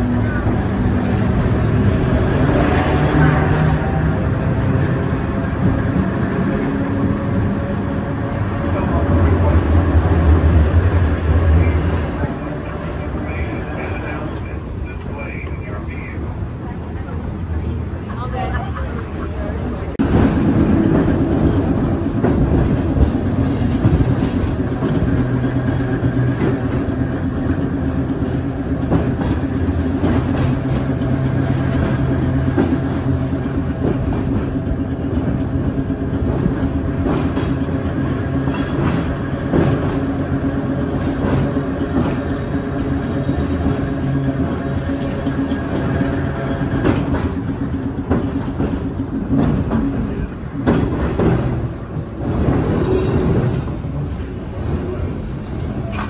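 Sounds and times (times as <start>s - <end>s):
streetcar motor hum: 0.0s - 56.0s
wheels rumbling on rails: 0.0s - 56.0s
wheels squealing: 25.5s - 31.0s, 41.6s - 47.1s, 48.5s - 50.3s.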